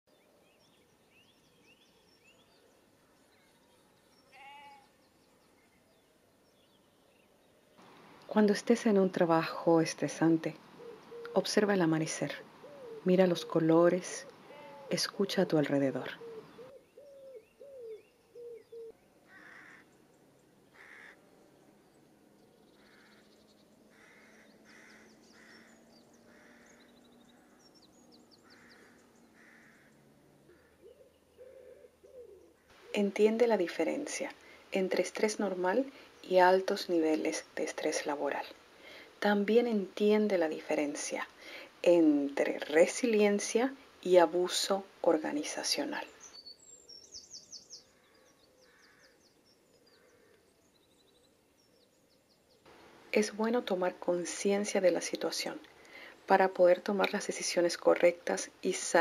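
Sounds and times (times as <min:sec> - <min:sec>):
small birds chirping: 0:00.1 - 0:59.0
sheep bleating: 0:04.3 - 0:04.9
crow cawing: 0:04.4 - 0:04.9, 0:14.4 - 0:14.9, 0:16.2 - 0:20.0, 0:20.7 - 0:21.2, 0:22.8 - 0:23.3, 0:23.9 - 0:27.6, 0:28.4 - 0:31.9, 0:47.9 - 0:49.2, 0:49.9 - 0:50.5.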